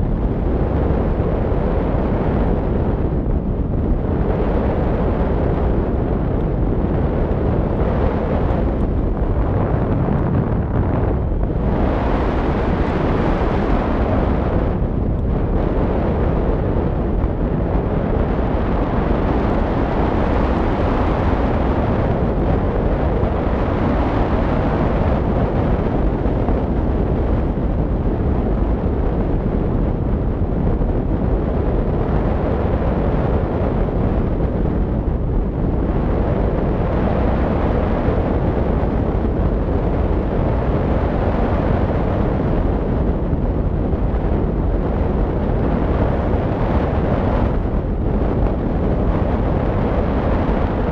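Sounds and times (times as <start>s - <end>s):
wind buffeting microphone: 0.0s - 50.9s.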